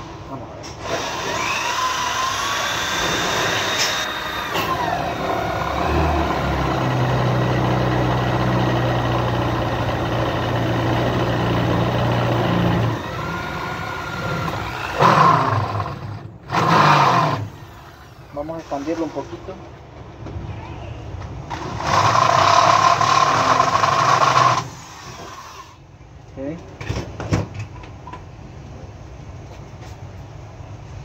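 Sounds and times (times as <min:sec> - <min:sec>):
electric drill drilling into plastic pipe: 0:00.8 - 0:06.0, 0:12.5 - 0:18.0, 0:21.7 - 0:25.8.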